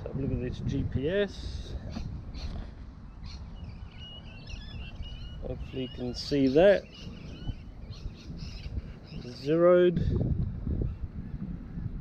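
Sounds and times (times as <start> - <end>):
wind buffeting microphone: 0.0 - 12.0
faint bird chirps: 1.9 - 9.6.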